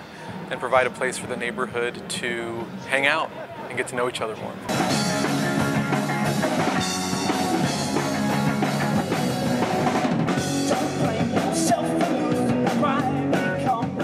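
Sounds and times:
live rock band: 4.6 - 14.0.

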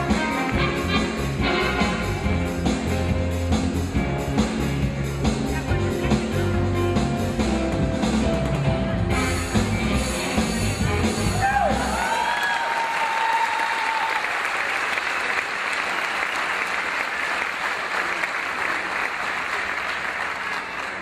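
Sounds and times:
music with drum beat: 0.0 - 12.2
audience clapping: 11.7 - 21.0.

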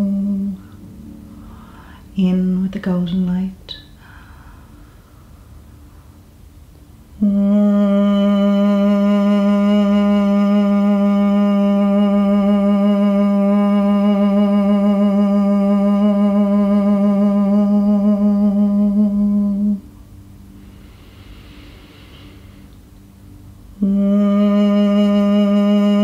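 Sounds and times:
voice holding low note: 0.0 - 4.0, 7.2 - 19.8, 23.8 - 26.0.

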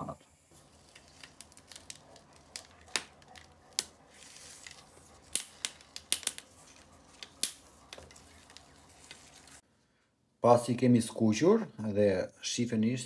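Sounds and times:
peppers crackling and popping in pan: 0.5 - 9.6.

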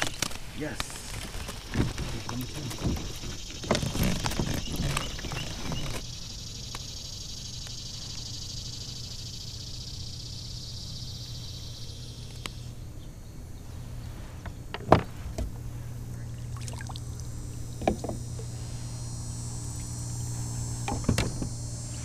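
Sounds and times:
high-pitched insect buzz: 0.0 - 13.4, 15.6 - 22.0
gear clicking and knocking: 1.5 - 6.1.

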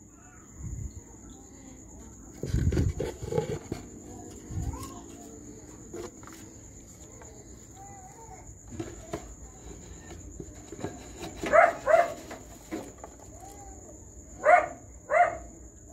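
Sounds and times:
faint chirps: 0.0 - 2.4.

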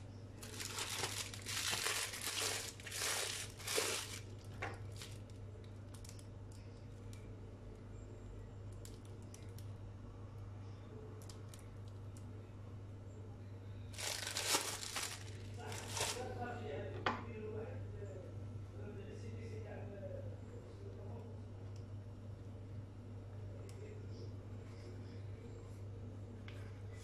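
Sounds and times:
plastic packaging crinkling: 0.4 - 5.3, 13.9 - 16.4.

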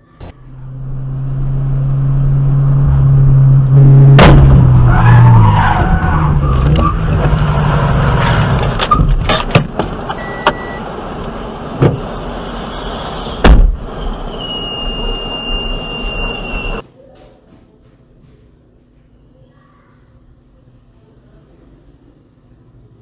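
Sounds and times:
car running heard from inside: 0.0 - 16.8
heavy thump: 4.0 - 4.7, 13.4 - 13.8.

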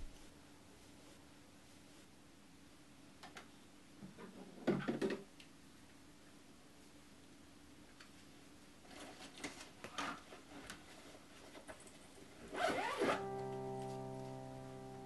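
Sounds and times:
backpack rustling: 12.6 - 13.2
zipper pulled shut: 12.6 - 13.2
held musical notes: 12.6 - 15.0.

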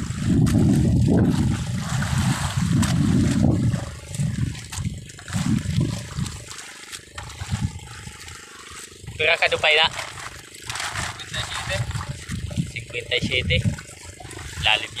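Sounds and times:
wind buffeting microphone: 0.0 - 6.5, 7.2 - 8.4, 10.9 - 15.0.

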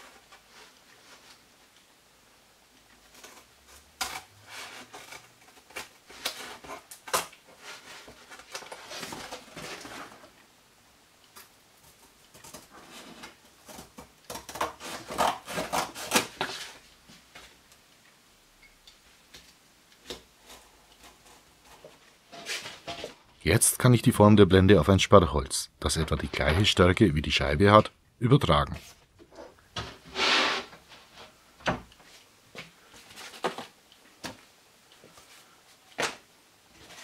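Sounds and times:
scissors cutting cardboard: 11.9 - 16.8.

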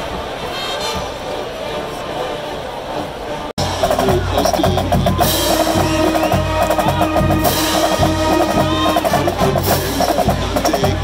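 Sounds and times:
brass and sousaphones: 0.0 - 11.0
bass drum: 3.6 - 11.0
driving drum beat: 3.6 - 11.0.

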